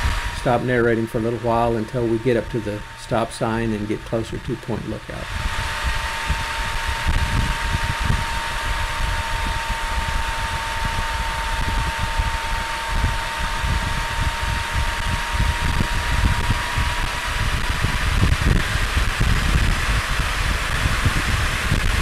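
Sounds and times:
motorcycle engine and road noise: 0.0 - 22.0
thin steady whine: 0.0 - 22.0
wind buffeting on microphone: 0.0 - 22.0.

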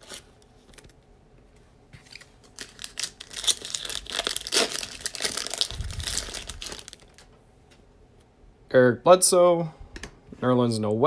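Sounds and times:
foil wrapper tearing and crinkling: 2.1 - 7.2.

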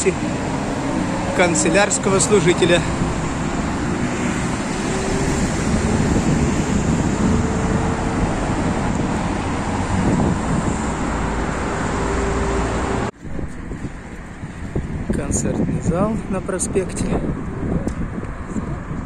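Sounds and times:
cars driving past: 0.0 - 15.2.

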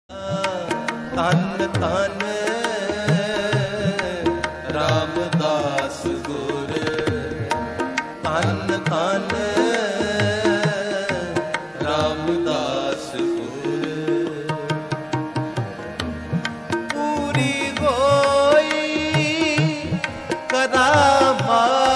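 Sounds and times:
ornamented devotional melody: 0.1 - 21.9
tabla strokes: 0.1 - 21.9.

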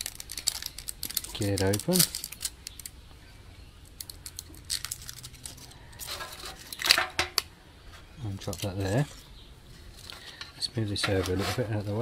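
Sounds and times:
plastic blister pack crinkling: 0.0 - 3.0, 3.8 - 7.0.

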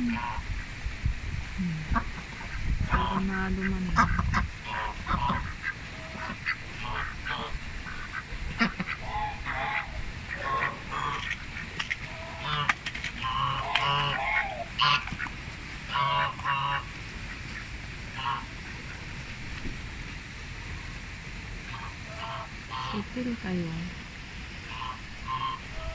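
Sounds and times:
ducks quacking: 0.0 - 0.5, 1.8 - 19.0, 21.7 - 23.4, 24.7 - 25.9.

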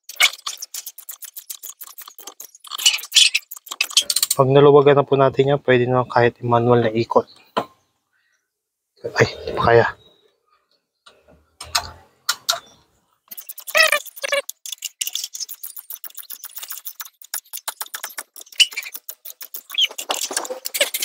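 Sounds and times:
high-pitched squeaky chirps: 0.0 - 4.4, 12.5 - 21.0.

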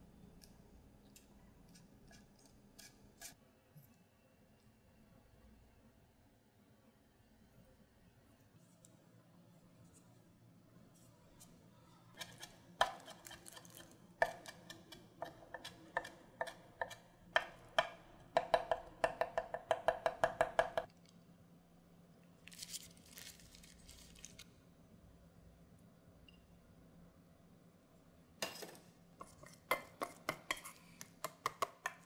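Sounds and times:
knife scraping: 1.7 - 3.4, 12.2 - 17.0, 28.5 - 31.0
knife chopping on cutting board: 12.2 - 20.9.

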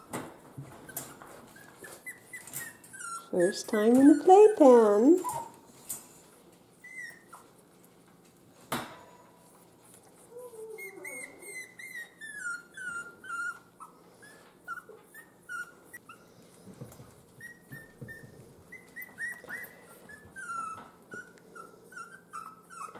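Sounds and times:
puppies whimpering: 0.7 - 5.6, 6.8 - 7.6, 10.2 - 16.5, 17.3 - 22.9.

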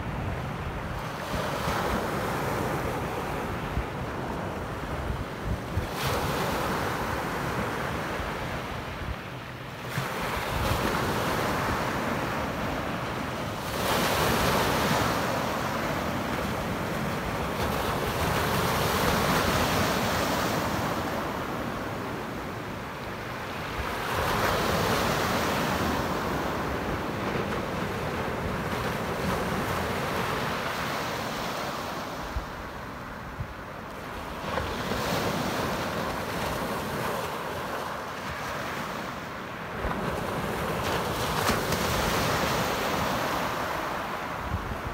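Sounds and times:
wind on microphone: 0.0 - 9.2, 44.3 - 44.9.

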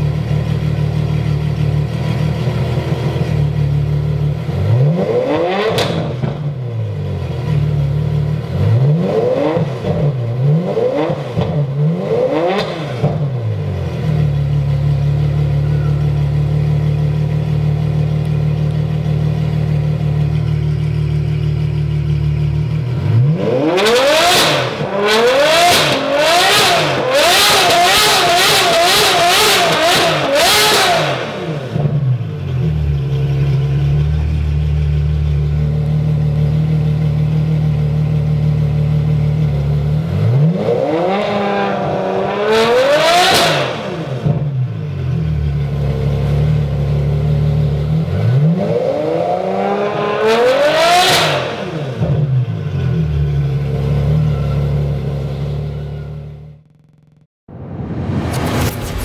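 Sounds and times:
sports car engine idling: 0.0 - 4.9, 5.9 - 9.0, 9.6 - 23.5, 31.4 - 40.2, 44.2 - 48.5, 51.9 - 57.0
engine revving: 2.6 - 14.3, 22.3 - 44.7, 45.3 - 57.2.

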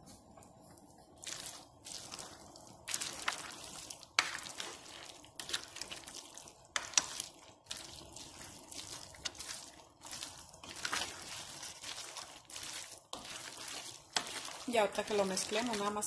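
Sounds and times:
wet squishing and sloshing: 0.9 - 16.0.

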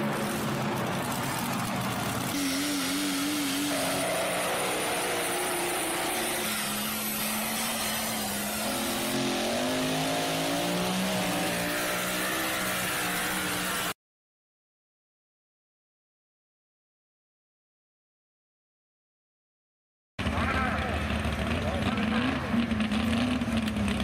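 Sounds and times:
truck engines revving hard: 0.0 - 14.0, 20.2 - 24.0.

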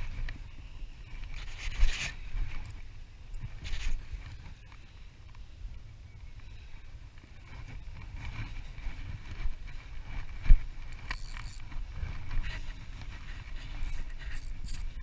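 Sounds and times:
wind rumbling on microphone: 0.0 - 15.0
fishing reel whirring: 10.7 - 15.0.

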